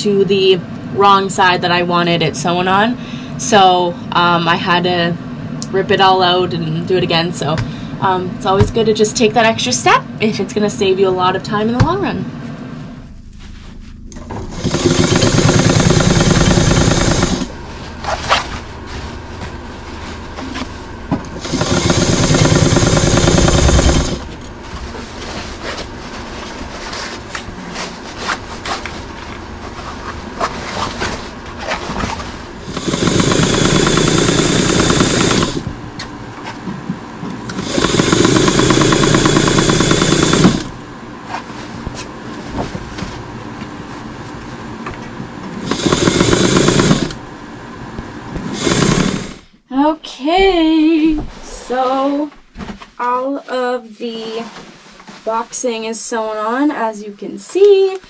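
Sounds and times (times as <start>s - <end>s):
fabric rustling: 13.0s - 14.1s, 17.5s - 21.1s, 24.0s - 32.5s
electric sewing machine running: 14.1s - 18.6s, 19.8s - 25.8s, 31.6s - 35.8s, 37.4s - 40.9s, 45.6s - 47.4s, 48.3s - 49.5s.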